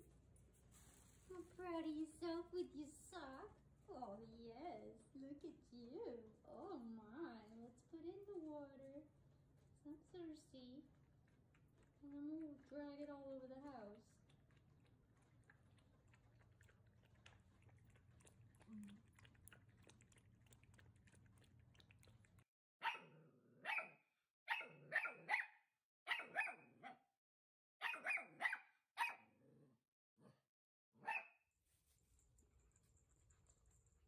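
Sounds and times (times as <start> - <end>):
faint low hum: 0.0 - 22.4
puppy barking: 22.8 - 27.1, 27.8 - 29.3, 31.0 - 31.4.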